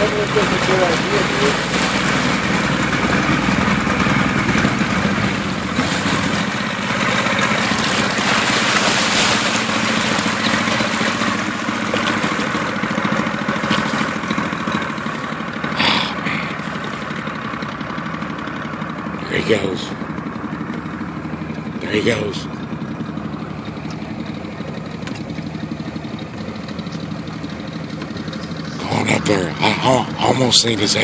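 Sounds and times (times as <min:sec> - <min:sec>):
water rushing past: 0:00.0 - 0:17.6
boat motor running: 0:00.0 - 0:31.0.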